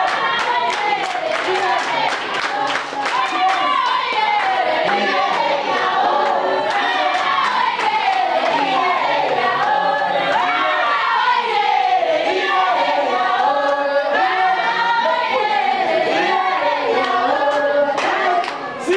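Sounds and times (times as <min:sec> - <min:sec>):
hand claps: 0:00.0 - 0:08.6, 0:17.0 - 0:18.6
students singing in chorus: 0:00.0 - 0:18.9.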